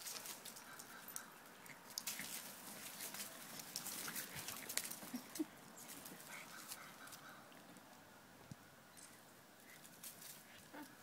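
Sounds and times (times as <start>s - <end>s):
puppies scuffling: 0.0s - 7.3s.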